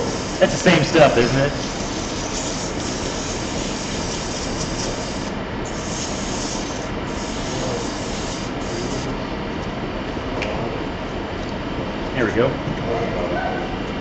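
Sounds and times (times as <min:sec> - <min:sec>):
sandpaper rasping on wood: 0:00.0 - 0:09.1
lathe running: 0:00.0 - 0:09.2.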